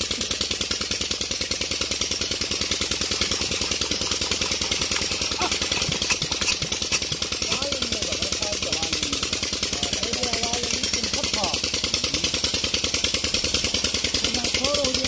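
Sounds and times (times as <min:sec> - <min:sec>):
diesel engine running: 0:00.0 - 0:15.0
engine knocks: 0:00.0 - 0:15.0.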